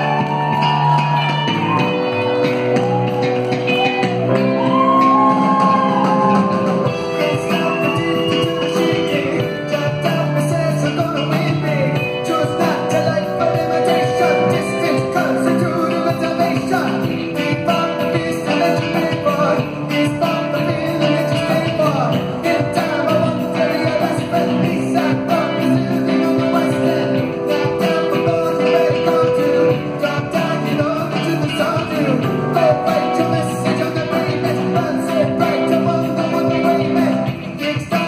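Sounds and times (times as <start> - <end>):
live rock band playing: 0.0 - 38.0.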